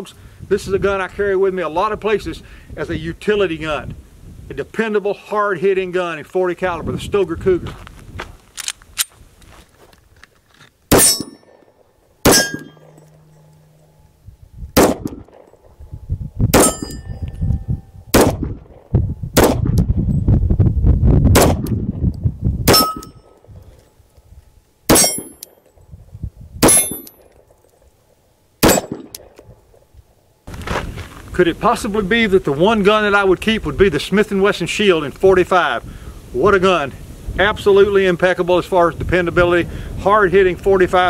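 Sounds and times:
wind rumbling on microphone: 0:00.2 - 0:04.9, 0:05.7 - 0:10.2, 0:12.3 - 0:27.5, 0:28.8 - 0:41.0
pistol shots: 0:10.9 - 0:11.6, 0:12.2 - 0:13.0, 0:14.8 - 0:15.5, 0:16.5 - 0:17.0, 0:18.1 - 0:18.8, 0:19.4 - 0:19.7, 0:21.4 - 0:21.7, 0:22.7 - 0:23.1, 0:24.9 - 0:25.4, 0:26.6 - 0:27.1, 0:28.6 - 0:29.4
steel target ringing: 0:10.9 - 0:11.6, 0:12.2 - 0:18.1, 0:22.7 - 0:23.4, 0:24.9 - 0:25.5, 0:26.6 - 0:27.2, 0:28.6 - 0:29.1.

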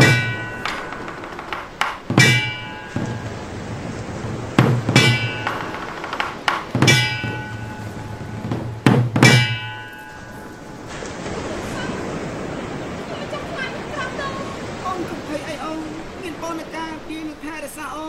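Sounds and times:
metallic percussion hits: 0:00.0 - 0:11.0.

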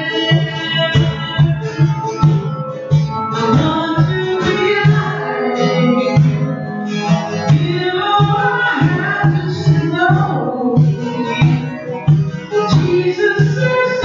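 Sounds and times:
person singing: 0:00.0 - 0:02.0, 0:03.4 - 0:14.0
acoustic guitar: 0:00.0 - 0:14.0
conga drums: 0:00.0 - 0:14.0.

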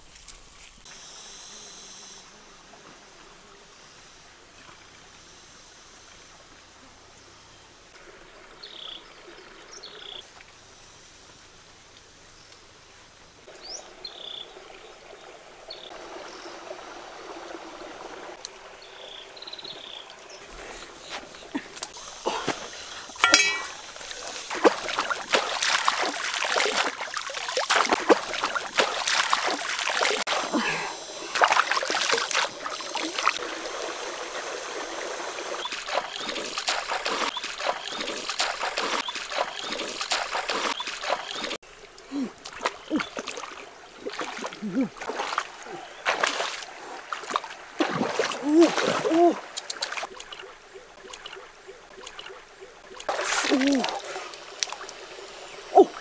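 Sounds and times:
water trickling: 0:13.5 - 0:56.0
hands splashing stream water: 0:16.9 - 0:56.0.

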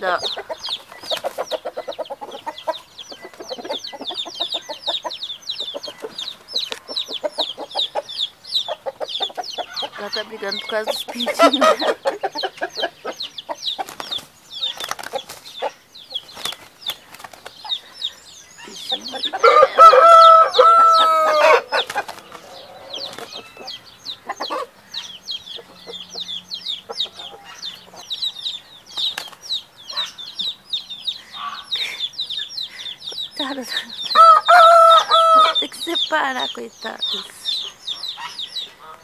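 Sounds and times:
chicks cheeping: 0:00.0 - 0:39.0
hens clucking: 0:00.0 - 0:39.0
wings flapping and scuffling: 0:00.2 - 0:04.6, 0:05.8 - 0:07.2, 0:09.9 - 0:18.0, 0:21.2 - 0:23.7, 0:28.9 - 0:30.0
rooster crowing: 0:19.1 - 0:23.8, 0:34.1 - 0:35.6.

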